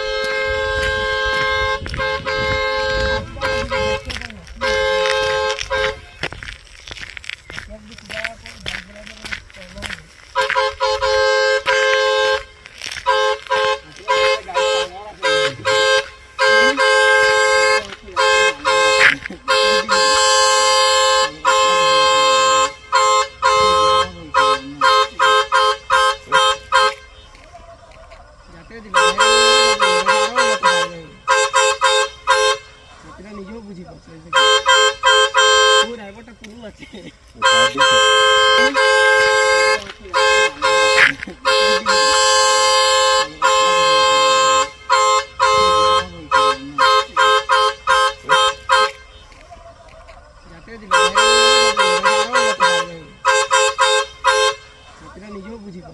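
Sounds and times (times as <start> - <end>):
two-tone vehicle horn: 0.0 - 6.4, 8.1 - 27.8, 28.5 - 33.6, 34.2 - 36.6, 37.3 - 55.9.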